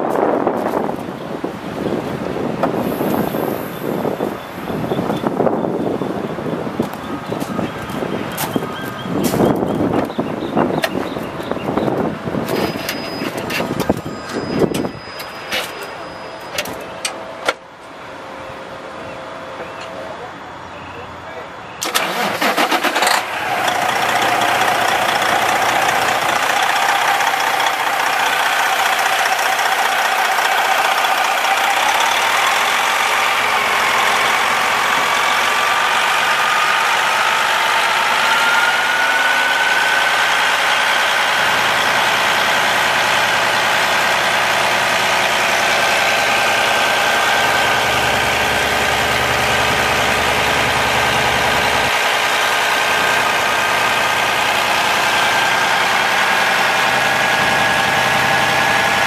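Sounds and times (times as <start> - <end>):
diesel engine idling: 0.0 - 59.0
engine whine rising in pitch: 21.9 - 59.0.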